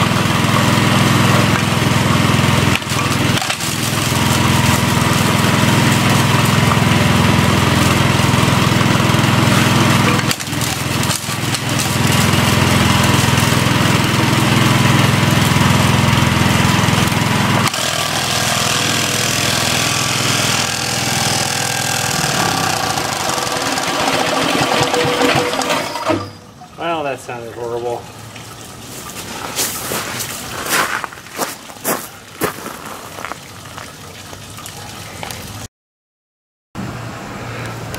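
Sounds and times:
impact mill engine running: 0.0 - 26.4.

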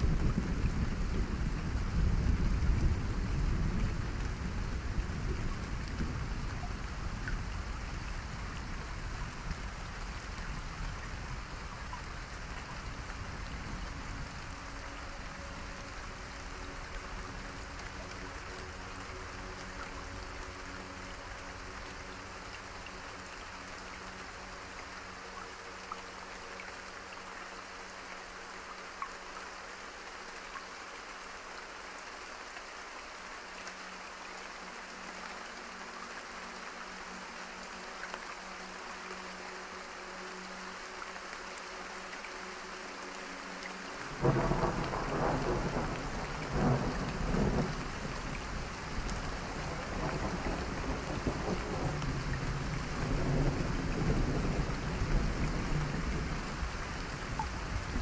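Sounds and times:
rain-like hiss: 0.0 - 58.0.

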